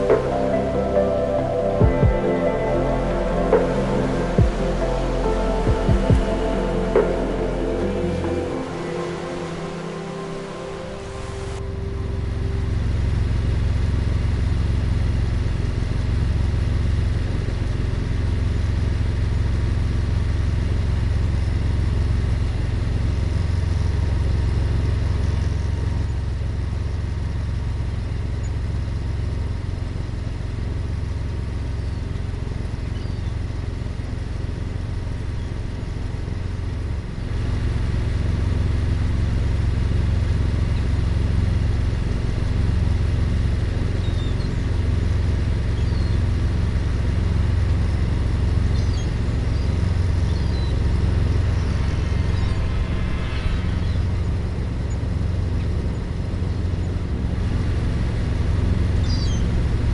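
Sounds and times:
boat engine rumbling: 0.0 - 59.9.

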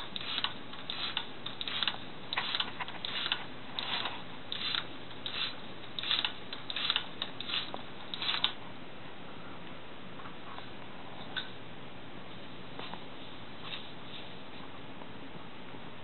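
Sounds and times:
air pump puffs: 0.0 - 8.5.

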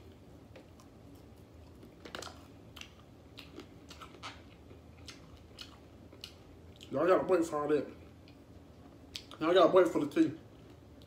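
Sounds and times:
wet chewing sounds: 0.0 - 7.0, 8.0 - 9.4.

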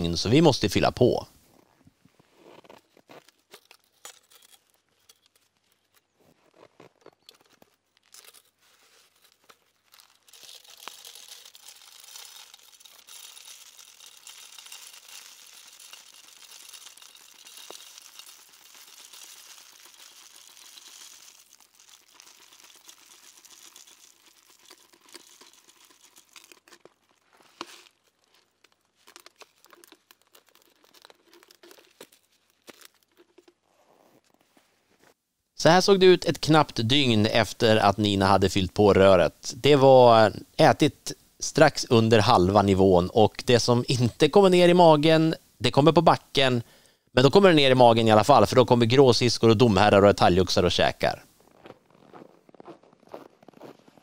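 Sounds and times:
gloves and sleeves rustling: 1.3 - 35.2
seeds pouring into plastic feeder: 8.2 - 32.9.

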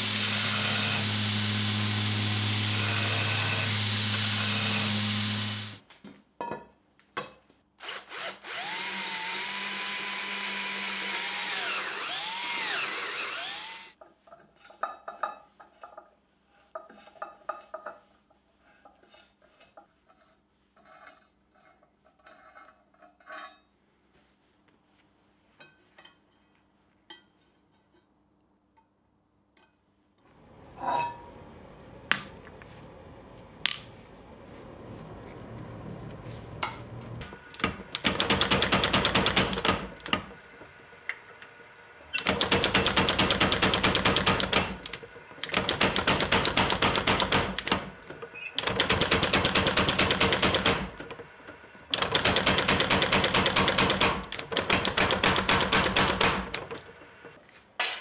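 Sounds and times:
power hammer motor: 0.0 - 5.8, 7.8 - 14.0.

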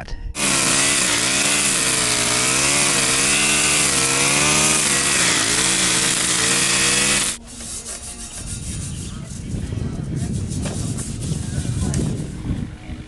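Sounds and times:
string trimmer engine running: 0.4 - 7.4.

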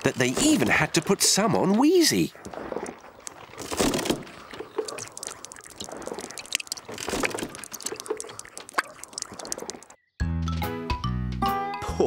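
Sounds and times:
juice dripping: 0.7 - 10.0
cartoon apple crunching: 2.8 - 10.0.

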